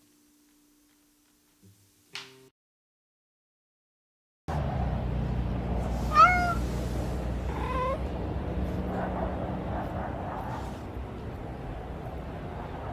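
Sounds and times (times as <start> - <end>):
cat meowing: 6.0 - 6.8, 7.4 - 8.1.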